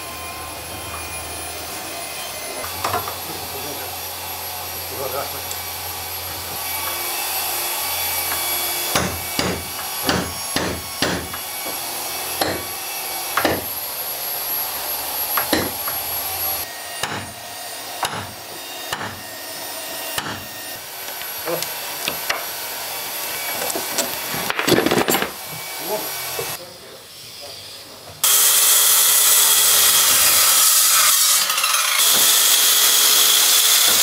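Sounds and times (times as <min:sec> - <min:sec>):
wood and tool knocks: 0:08.3 - 0:11.8, 0:12.4 - 0:12.7, 0:13.4 - 0:13.7, 0:15.4 - 0:16.0, 0:17.0 - 0:17.3, 0:18.0 - 0:19.2, 0:23.6 - 0:25.4.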